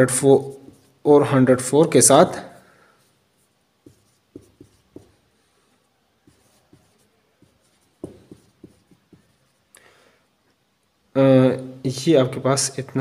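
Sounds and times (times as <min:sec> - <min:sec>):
marker pen strokes and taps: 0:00.5 - 0:01.0, 0:03.4 - 0:09.6.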